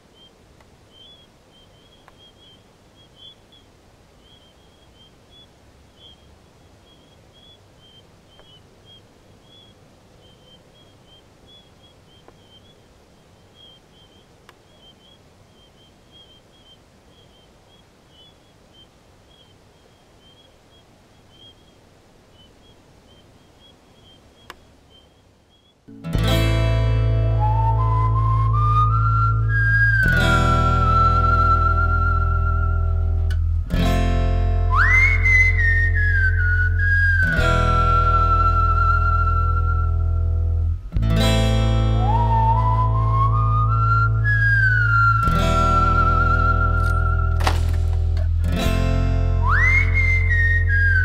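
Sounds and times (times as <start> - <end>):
crickets chirping: 0.0 - 26.0, 27.4 - 33.2, 34.0 - 40.5, 41.5 - 48.4, 49.3 - 51.0
low outdoor hum: 0.0 - 51.0
faint sharp clicks: 0.5 - 0.8, 1.9 - 2.6, 8.3 - 9.0, 12.2 - 12.7, 13.6 - 16.3, 24.4 - 25.1, 33.2 - 33.5.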